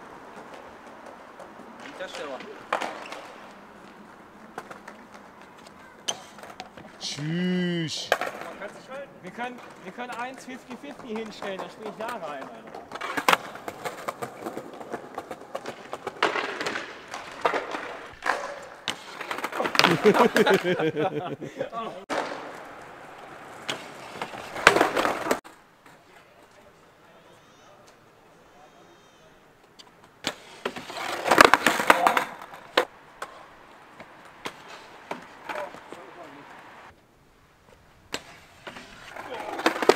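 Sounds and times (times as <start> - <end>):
skateboards clacking on paving: 0.0 - 7.2, 8.1 - 20.9, 21.8 - 27.0, 29.6 - 37.0, 37.6 - 39.9
skateboard scraping slides: 30.4 - 32.7, 34.0 - 36.8, 38.2 - 39.9.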